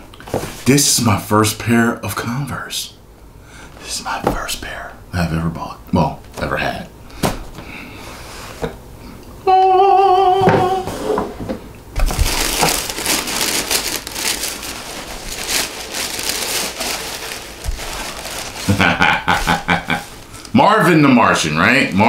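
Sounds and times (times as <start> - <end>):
tissue paper crinkling: 12.0 - 20.5.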